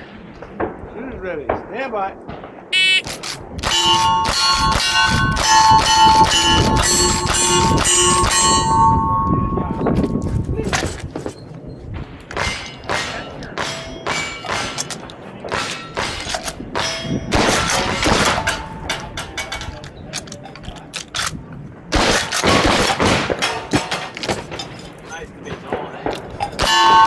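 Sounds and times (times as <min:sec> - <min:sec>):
steel plates clanging: 0:03.6 - 0:10.1, 0:26.3 - 0:27.0
gunshots: 0:12.0 - 0:19.2, 0:21.9 - 0:24.7, 0:25.5 - 0:27.0.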